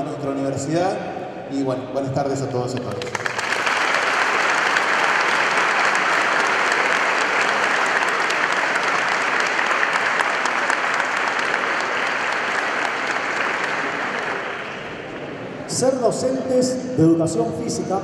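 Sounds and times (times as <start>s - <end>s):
audience applauding: 2.8s - 15.4s.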